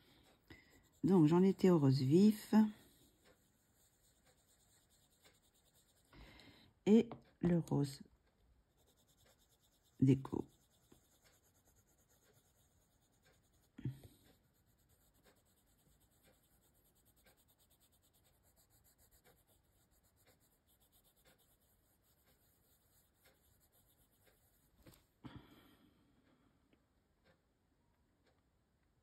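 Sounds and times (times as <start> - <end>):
pencil scratching on paper: 0.0 - 6.2, 8.7 - 25.2.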